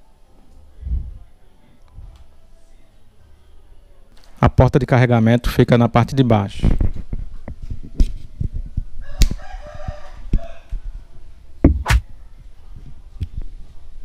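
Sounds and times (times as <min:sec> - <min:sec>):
rooster crowing: 0:09.0 - 0:10.8.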